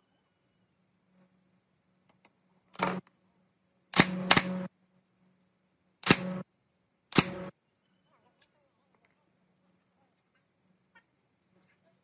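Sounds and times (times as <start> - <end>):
nail gun firing: 3.9 - 4.7, 6.0 - 6.4, 7.1 - 7.5.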